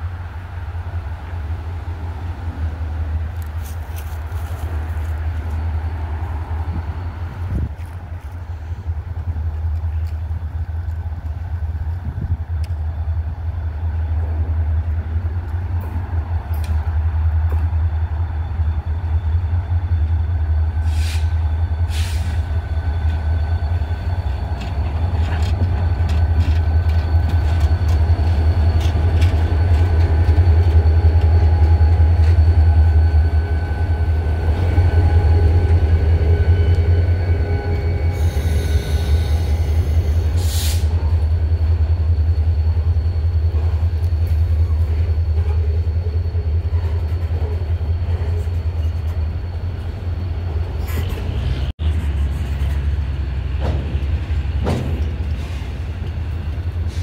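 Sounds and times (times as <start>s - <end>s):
diesel locomotive engine rumbling: 0.0s - 57.0s
train wheels squealing: 17.4s - 57.0s.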